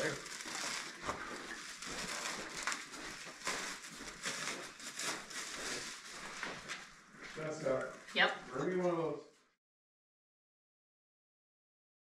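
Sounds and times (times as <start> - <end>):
plastic wrapping crinkling: 0.0 - 8.4.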